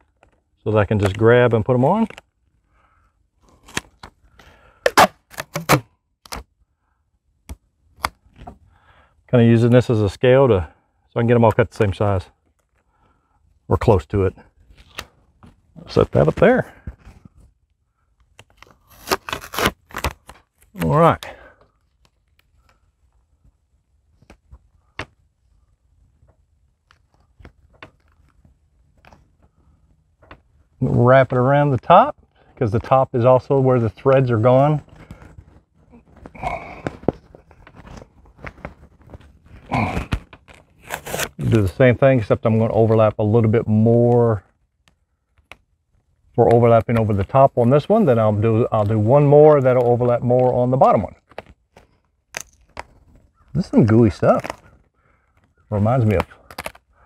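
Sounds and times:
tape clicking and crinkling: 2.0s - 2.4s, 3.4s - 6.5s, 14.6s - 25.2s, 26.1s - 30.5s, 34.9s - 41.8s, 44.4s - 48.1s, 49.6s - 57.0s.

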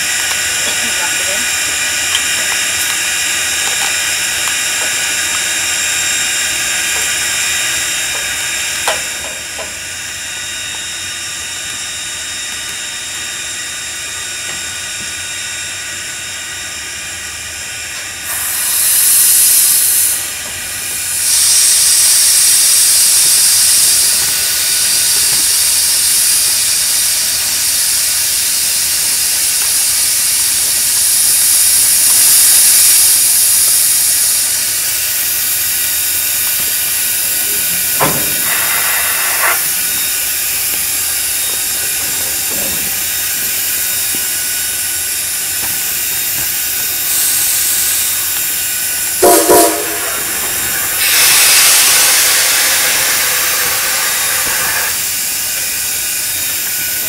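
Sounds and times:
steam locomotive hissing: 0.0s - 57.0s
loud escaping steam hiss: 18.2s - 57.0s.

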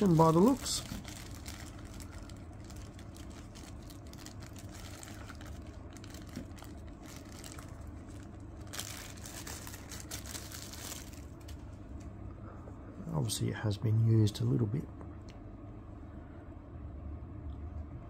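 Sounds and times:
plastic bag crinkling: 0.0s - 11.7s
low hum: 0.0s - 18.0s.

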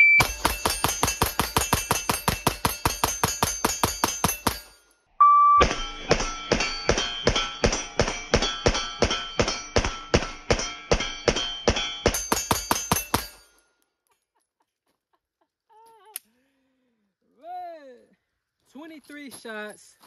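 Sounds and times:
rapid pistol shots: 0.2s - 4.6s
metallic ring: 0.2s - 5.0s, 5.6s - 13.8s.

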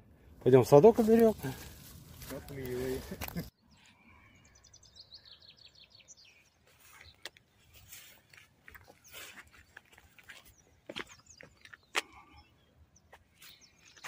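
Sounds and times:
light footsteps through grass: 0.5s - 3.5s, 6.6s - 12.1s
songbird chirping: 0.5s - 14.0s
faint rustling: 0.8s - 3.5s.

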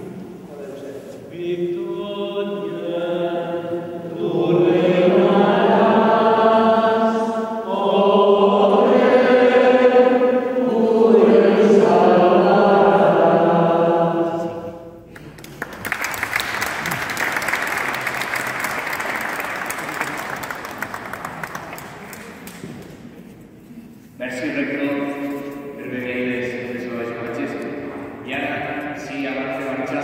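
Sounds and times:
voices singing a hymn: 0.0s - 15.1s, 24.2s - 30.0s
applause: 15.1s - 23.0s.

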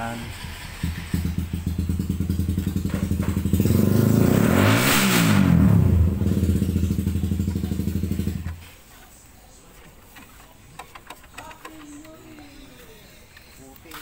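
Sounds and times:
vehicle engine running: 0.0s - 8.6s.

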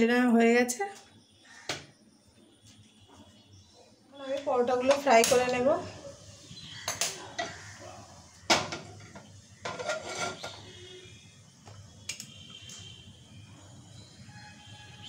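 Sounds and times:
metal frying pan clattering: 8.5s - 10.7s.

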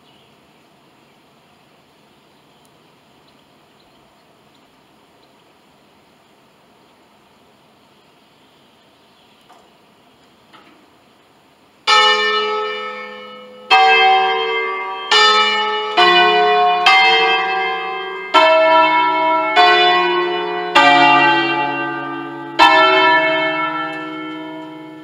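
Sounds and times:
church bells ringing: 11.8s - 25.0s.

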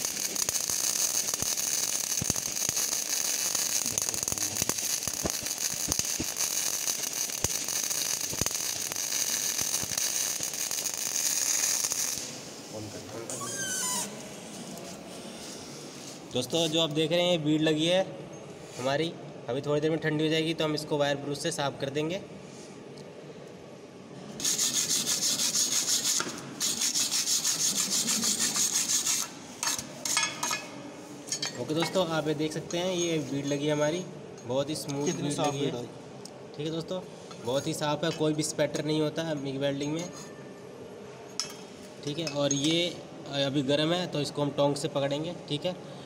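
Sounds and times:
welding arc sharp pops: 0.0s - 12.4s
welding arc hissing and crackling: 0.0s - 14.1s, 24.4s - 30.6s
wire brush scrubbing metal: 24.4s - 30.6s.

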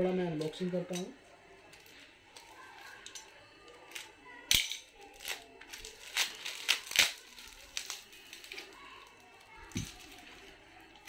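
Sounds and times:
plastic wrapping crinkling: 1.6s - 4.1s, 5.0s - 11.0s.

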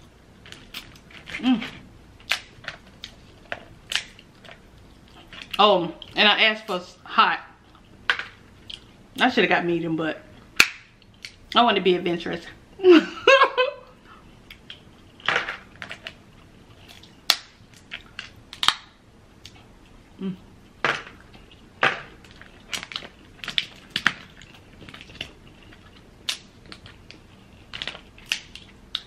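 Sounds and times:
crab shells cracking: 2.2s - 5.6s, 10.6s - 11.4s, 16.8s - 19.5s, 20.9s - 29.0s.

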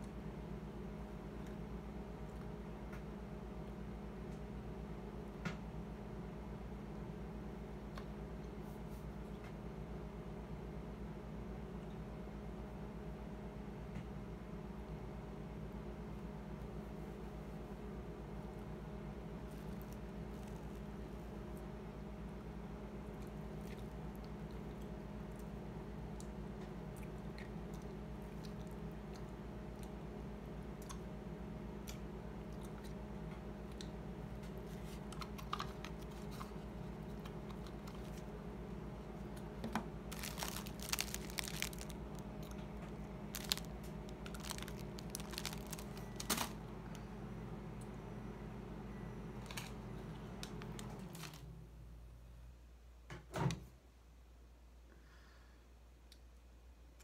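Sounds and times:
steady machine hum: 0.0s - 52.7s
eating with plastic spoon: 33.6s - 46.6s
plastic wrap crinkling: 39.6s - 46.6s, 50.4s - 51.5s.

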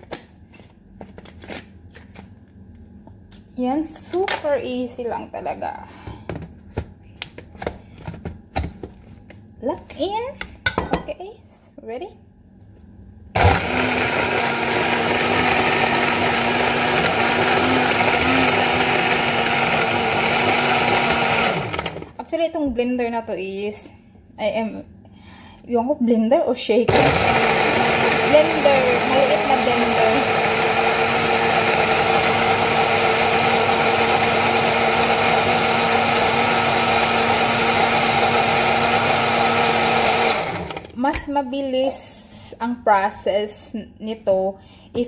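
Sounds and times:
blender motor whirring: 13.4s - 22.2s, 26.9s - 41.0s.

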